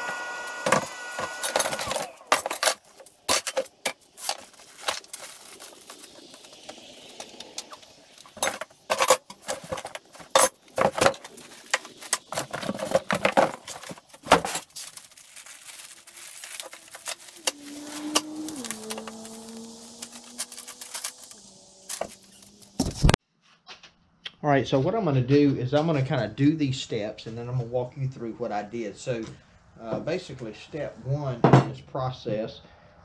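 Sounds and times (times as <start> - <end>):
packing rustling: 1.2 - 6.9, 8.2 - 23.2.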